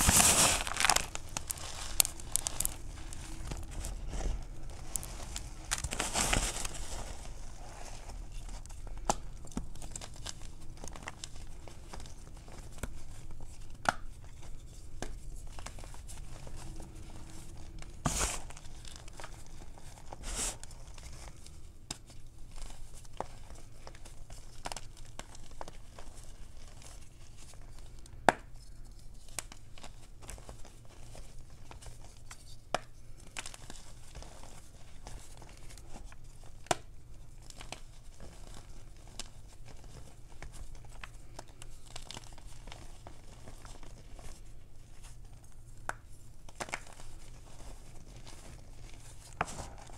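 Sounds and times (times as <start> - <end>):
fingers crunching chalk powder: 0.0 - 11.7.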